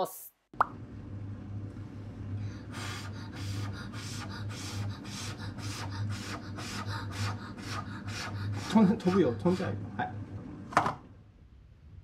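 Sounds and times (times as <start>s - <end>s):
steady low hum: 0.4s - 12.0s
child blowing short puffs: 2.7s - 8.7s.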